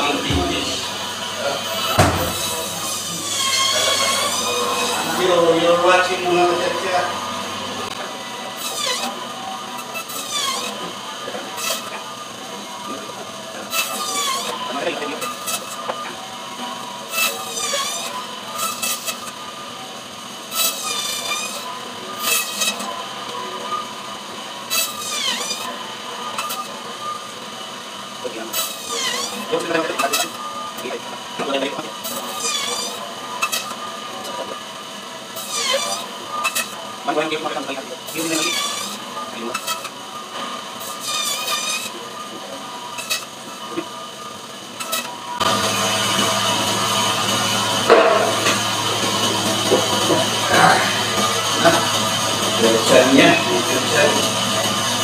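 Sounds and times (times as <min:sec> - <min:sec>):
band saw running: 0:00.0 - 0:55.0
whining grind of saw cutting fish: 0:00.0 - 0:55.0
blade warbling whine: 0:45.4 - 0:54.8.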